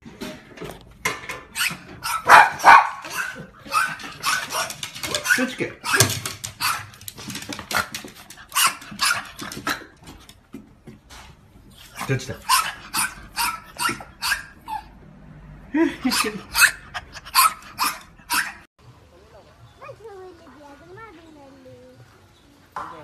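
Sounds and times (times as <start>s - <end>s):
small dog barking: 2.0s - 7.0s, 8.5s - 9.3s, 12.4s - 14.9s, 16.1s - 18.6s.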